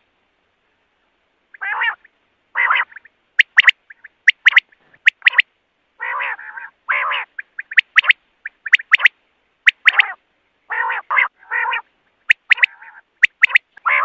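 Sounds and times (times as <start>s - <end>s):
quail rasping calls: 1.5s - 14.0s
quail sharp clipped notes: 2.7s - 5.5s, 7.3s - 10.2s, 12.2s - 14.0s.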